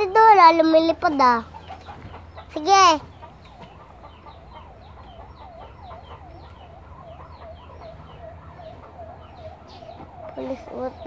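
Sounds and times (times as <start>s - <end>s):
faint police siren yelping: 1.4s - 11.0s.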